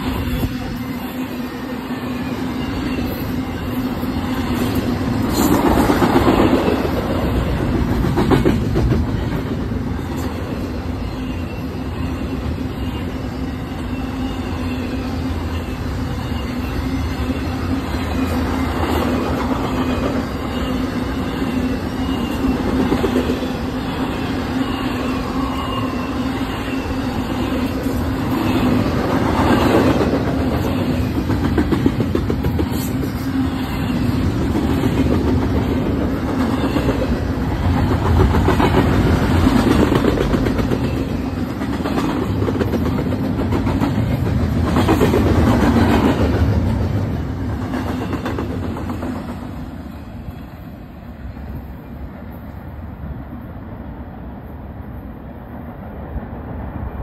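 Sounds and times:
freight train rumbling past: 0:00.0 - 0:57.0
train wheels clickety-clack: 0:02.8 - 0:10.7, 0:17.9 - 0:24.2, 0:27.5 - 0:50.0.

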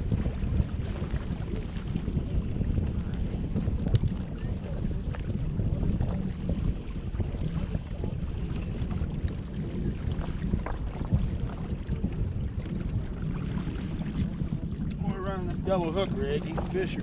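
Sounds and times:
wind buffeting microphone: 0:00.0 - 0:17.0
faint clicks: 0:14.8 - 0:15.0.

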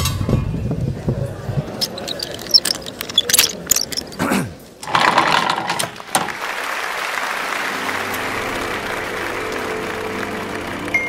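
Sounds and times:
sharp clicks: 0:01.8 - 0:04.2.

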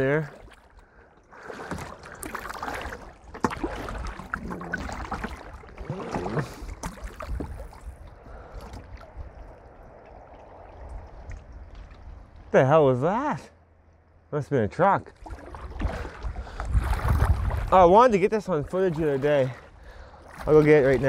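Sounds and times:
paddle water splashing and dripping: 0:00.0 - 0:12.5, 0:15.0 - 0:21.0
water slapping against hull: 0:00.0 - 0:12.5, 0:15.0 - 0:21.0
wind rumble on microphone: 0:06.4 - 0:12.6, 0:15.3 - 0:18.8.

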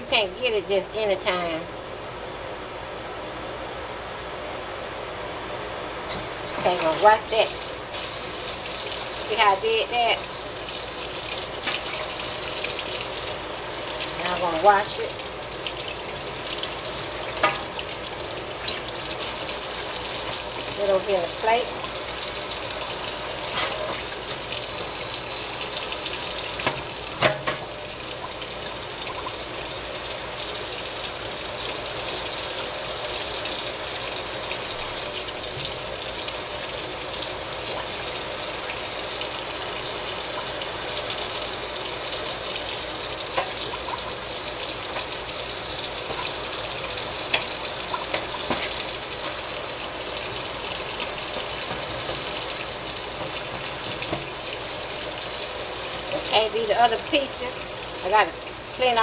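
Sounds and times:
faucet running into steel sink: 0:06.1 - 0:59.0.

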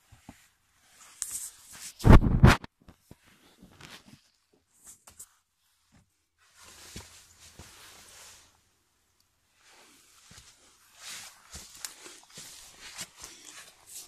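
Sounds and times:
rubbing thump on microphone: 0:01.9 - 0:02.7
phone rustling and bumping: 0:02.0 - 0:02.7.

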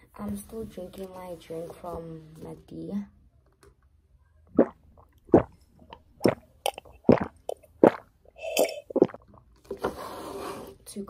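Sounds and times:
wet swallowing sounds: 0:04.5 - 0:09.6.

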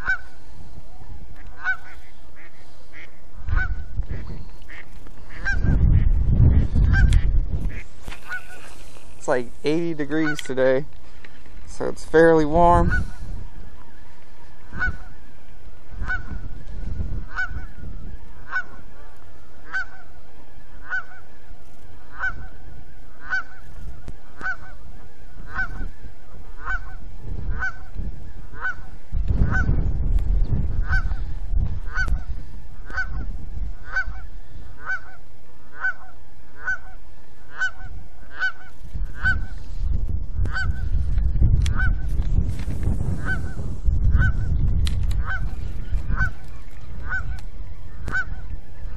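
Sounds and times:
goose honking: 0:00.0 - 0:00.4, 0:01.4 - 0:05.8, 0:06.9 - 0:08.8, 0:10.0 - 0:10.6, 0:12.4 - 0:13.2, 0:14.6 - 0:15.2, 0:15.9 - 0:16.6, 0:17.3 - 0:21.4, 0:22.0 - 0:27.9, 0:28.5 - 0:29.7, 0:30.8 - 0:31.2, 0:31.9 - 0:39.6, 0:40.5 - 0:40.9, 0:43.2 - 0:44.5, 0:45.2 - 0:48.9.

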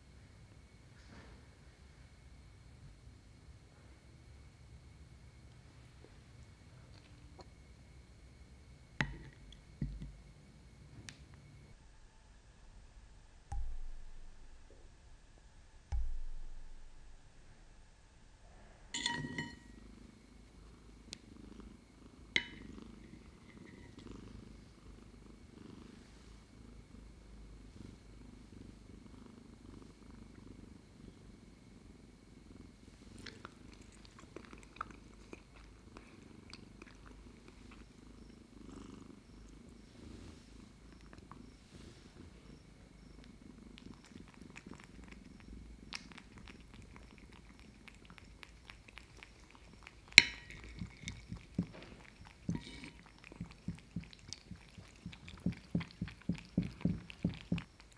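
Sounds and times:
light ringing clinks: 0:19.0 - 0:19.8
cat purring: 0:19.2 - 0:57.9
cat licking from a spoon: 0:43.8 - 0:57.9.

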